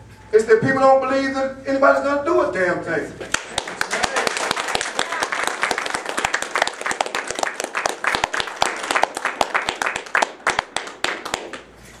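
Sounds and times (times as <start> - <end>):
audience applauding: 3.3 - 11.7.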